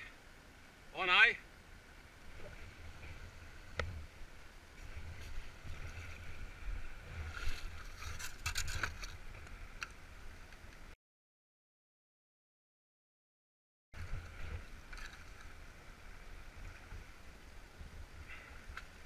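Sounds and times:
faint river water: 0.0s - 11.0s, 14.0s - 19.0s
wind rumble on microphone: 2.0s - 11.0s, 14.0s - 19.0s.

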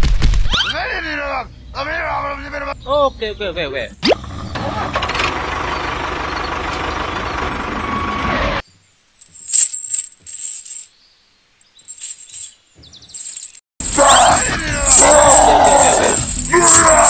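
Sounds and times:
small tractor engine running: 4.2s - 8.6s
light metallic clinks and rattles: 9.2s - 11.0s, 11.7s - 17.0s.

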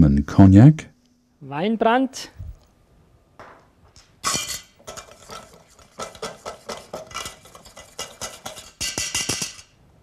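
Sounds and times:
whisk clicking in metal bowl: 4.9s - 9.6s.

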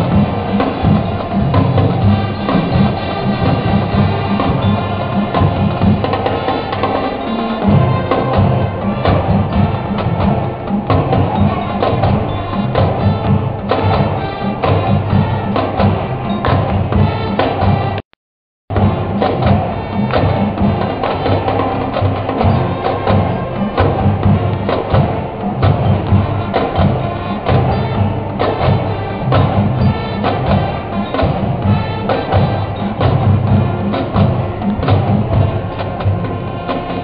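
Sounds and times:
marching brass band playing: 0.0s - 18.0s, 18.7s - 37.0s
sharp drum strokes: 0.0s - 18.0s, 18.7s - 37.0s.

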